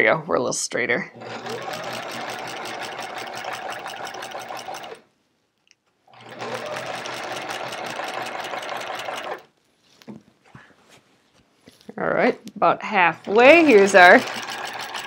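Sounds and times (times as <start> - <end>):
sewing machine stitching: 1.2 - 5.0, 6.1 - 9.5, 13.2 - 15.0.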